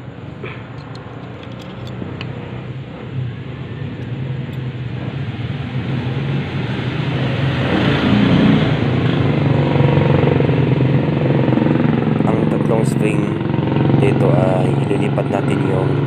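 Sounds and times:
vehicle engine humming: 0.0s - 16.0s.

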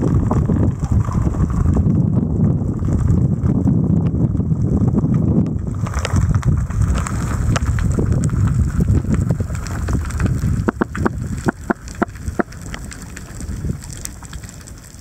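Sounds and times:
fine underwater crackle: 0.0s - 15.0s
underwater rumble of moving water: 0.0s - 15.0s
sharp underwater clicks: 6.9s - 15.0s.

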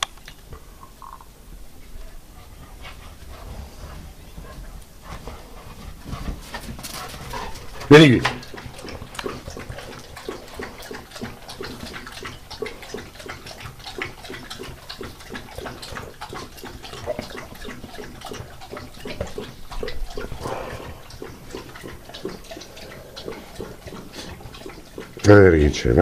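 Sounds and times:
dog lapping water from metal bowl: 5.3s - 26.0s.

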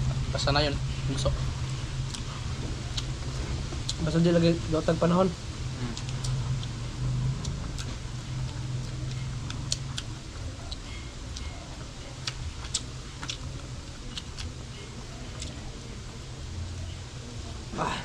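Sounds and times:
low steady hum: 0.0s - 18.0s
chewing clicks and smacks: 2.1s - 2.3s, 7.4s - 11.6s, 12.2s - 14.6s, 15.3s - 15.6s.

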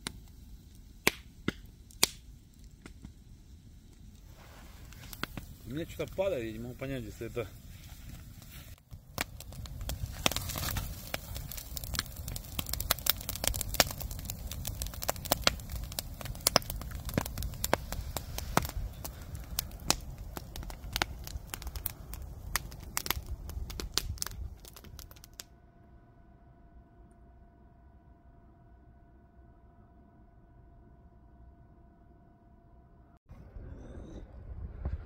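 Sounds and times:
campfire crackling and popping: 0.0s - 25.4s
low rumble: 33.0s - 35.0s.

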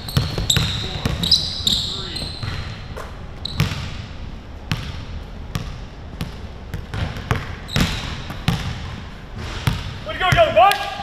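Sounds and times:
basketball bouncing on wooden floor: 0.0s - 1.3s, 4.7s - 9.0s, 9.6s - 9.9s.

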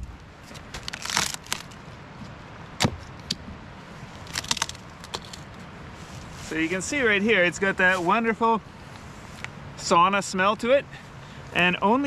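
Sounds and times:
wood crackling: 0.0s - 1.9s, 4.0s - 7.0s
axe chopping log: 2.8s - 3.0s.

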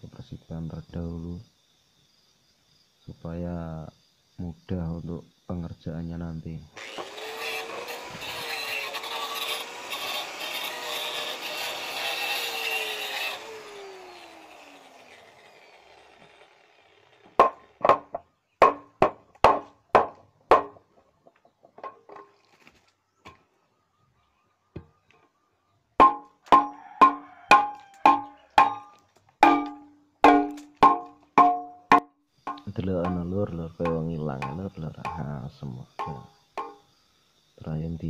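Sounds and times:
angle grinder winding down: 6.8s - 17.8s
metal rod knocking on pipe: 26.0s - 35.3s, 36.0s - 36.8s.

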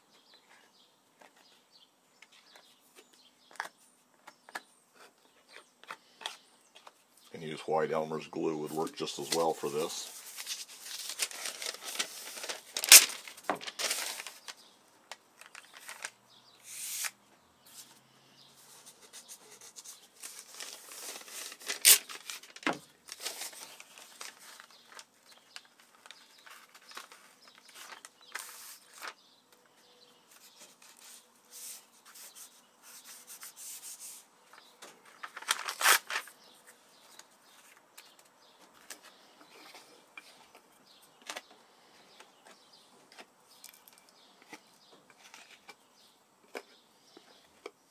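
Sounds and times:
paper rustling and crinkling: 8.6s - 17.1s, 18.6s - 29.2s, 30.3s - 41.5s, 42.2s - 45.8s.

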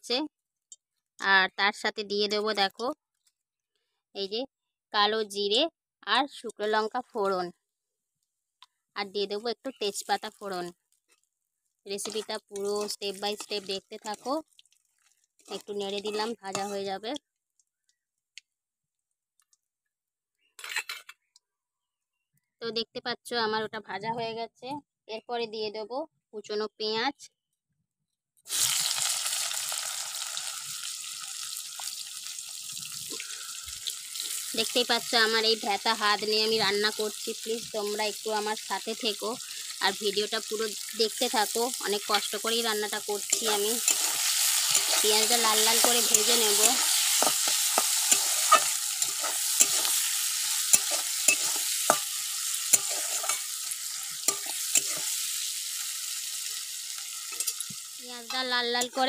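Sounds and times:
onion sizzling in hot oil: 9.0s - 17.2s, 28.5s - 59.0s
spatula scraping and knocking pan: 12.0s - 14.3s, 15.5s - 16.8s, 43.3s - 55.2s.

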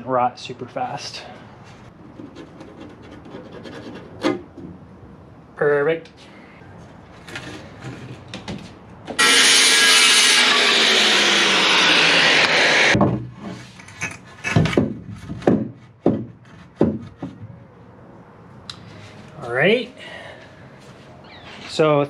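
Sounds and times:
wood strip knocking and scraping: 2.0s - 4.8s, 13.0s - 17.5s
loud rushing noise: 9.2s - 13.0s.

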